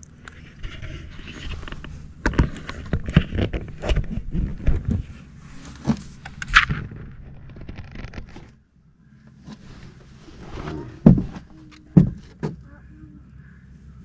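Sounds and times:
knocks and bumps in a boat: 10.5 - 12.9.

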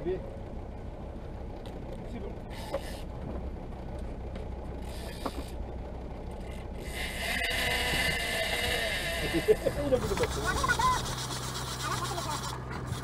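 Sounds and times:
boat engine hum: 0.0 - 13.0
fishing reel whirring: 2.5 - 3.1, 4.8 - 5.6, 6.4 - 13.0.

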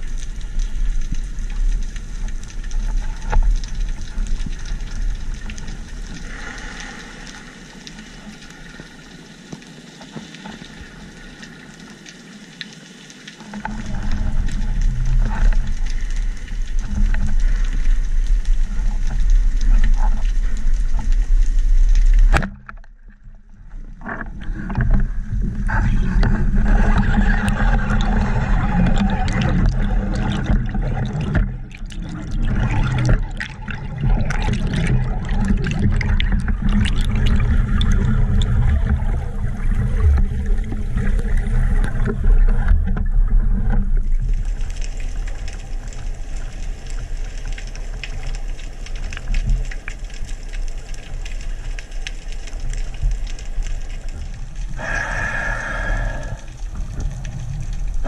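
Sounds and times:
underwater water noise: 0.0 - 58.0
heavy low rush of water: 54.7 - 57.3.

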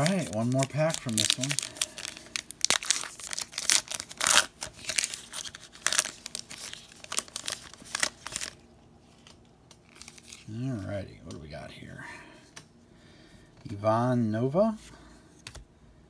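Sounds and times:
plastic wrapper tearing and crinkling: 0.0 - 10.5.

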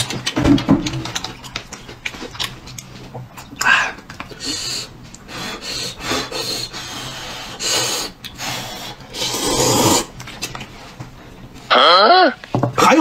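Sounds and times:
person slurping noodles: 5.8 - 10.1.

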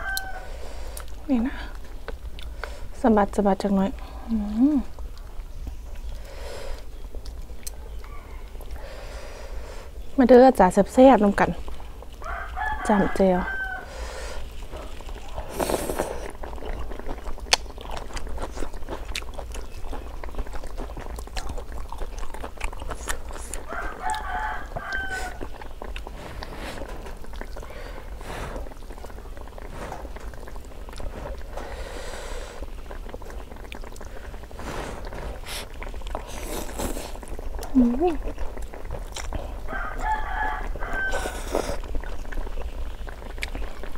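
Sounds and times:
rooster crowing: 0.0 - 0.6, 8.0 - 8.6, 12.2 - 14.2, 23.6 - 25.6, 39.7 - 41.5
noodles slurped and chewed: 0.0 - 10.0, 10.6 - 43.9.

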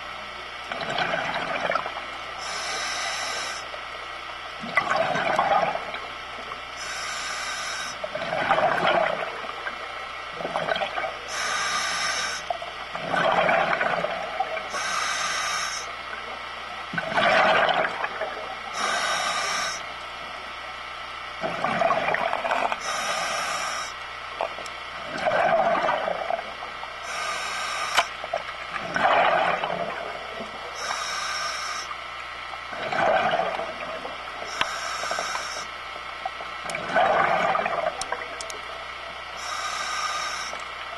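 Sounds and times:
exhaled bubbles gurgling: 0.0 - 40.9
regulator air hiss: 2.4 - 3.7, 6.8 - 8.1, 11.2 - 12.5, 14.7 - 16.0, 18.7 - 20.0, 22.8 - 24.0, 27.0 - 28.2, 30.7 - 32.0, 34.4 - 35.8, 39.4 - 40.6.

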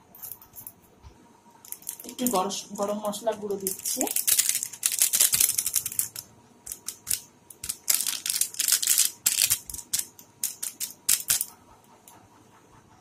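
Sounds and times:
spice container shaking: 1.7 - 11.6.

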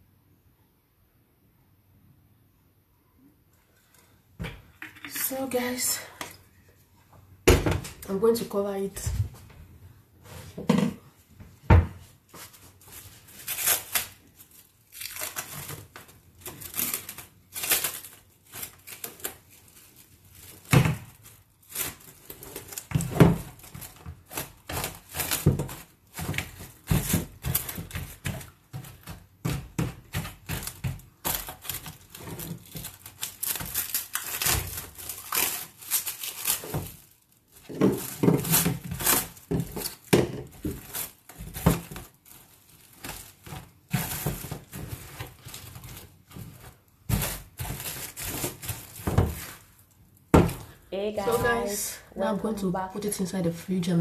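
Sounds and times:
cling film crinkling: 12.3 - 51.8.

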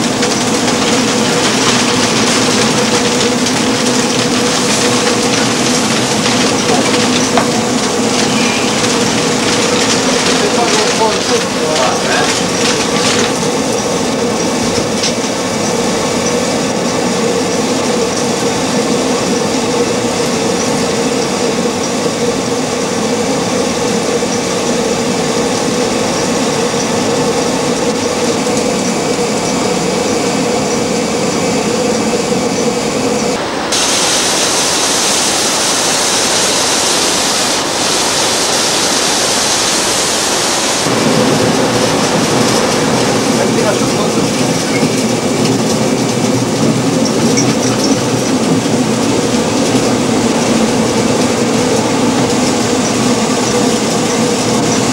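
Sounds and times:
mill machinery rumble and hum: 0.0 - 54.9
bright rushing hiss: 33.6 - 44.8.

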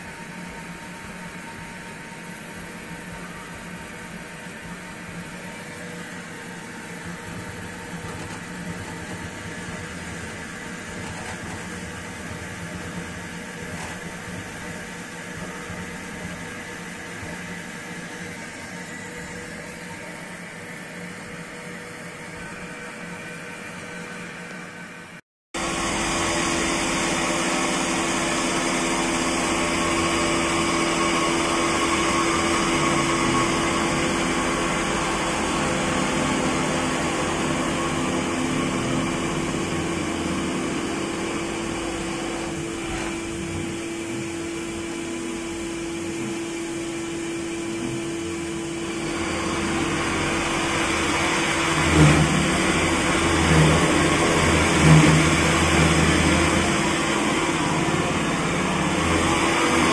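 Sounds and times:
milling spindle hum: 25.6 - 59.9.

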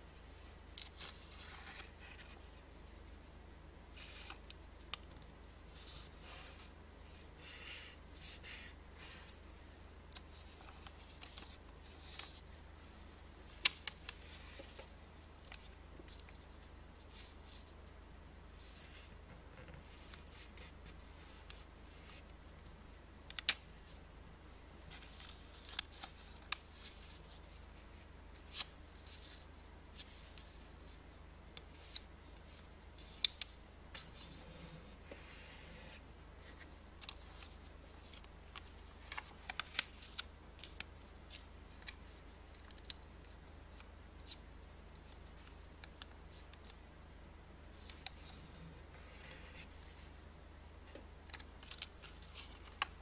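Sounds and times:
banknote rustling and crinkling: 10.1 - 17.8, 31.7 - 46.8, 50.9 - 53.0.

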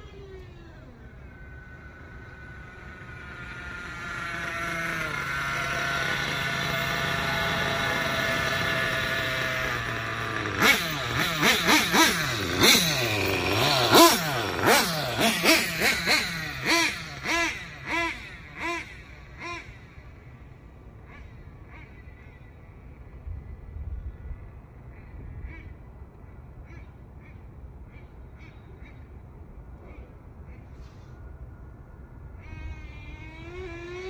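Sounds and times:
rc car engine revving: 0.0 - 22.6, 32.4 - 34.0.

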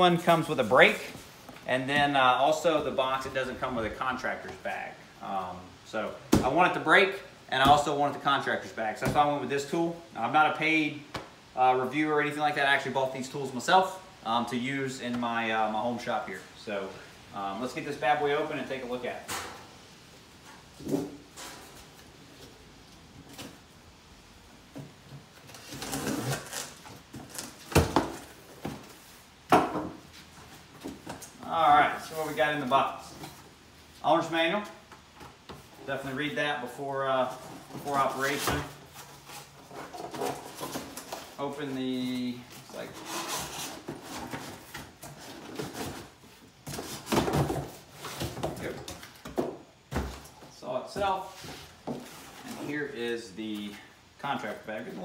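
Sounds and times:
cardboard scraping and rustling: 25.2 - 29.2, 37.2 - 52.9.

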